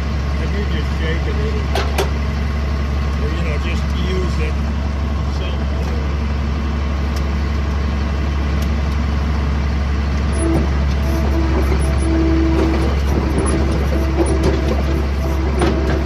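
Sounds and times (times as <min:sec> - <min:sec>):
skid steer engine running: 0:00.0 - 0:16.0
hydraulic whine: 0:10.1 - 0:16.0.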